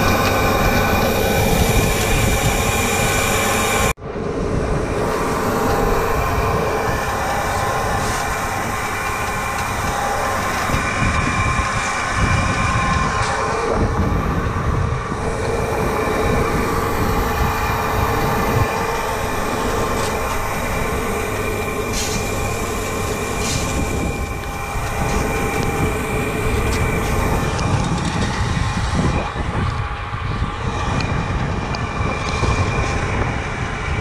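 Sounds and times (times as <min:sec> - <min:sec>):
grain machinery running with whine: 0:00.0 - 0:34.0.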